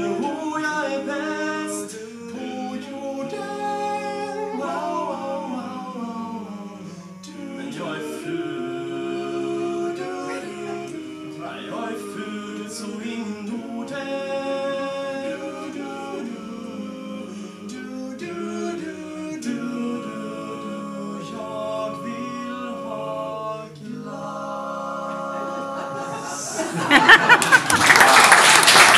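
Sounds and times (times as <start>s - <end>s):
male vocal quartet singing: 0.0s - 27.4s
audience applause: 26.7s - 28.9s.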